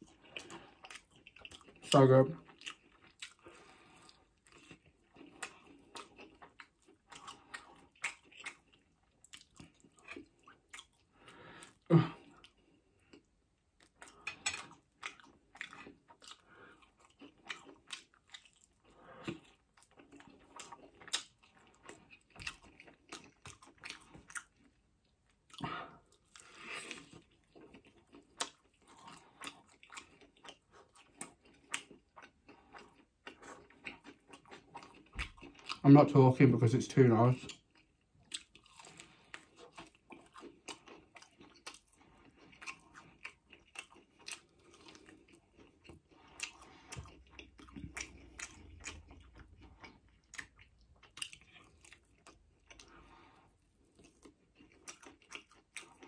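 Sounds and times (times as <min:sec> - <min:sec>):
chewing and biting: 0:00.0 - 0:35.8, 0:37.3 - 0:56.0.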